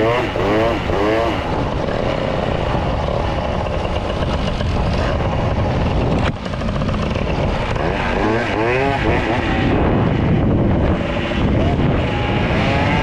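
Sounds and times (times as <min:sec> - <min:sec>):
steady rushing noise: 0:00.0 - 0:13.0
two-stroke moped engine running: 0:00.0 - 0:13.0.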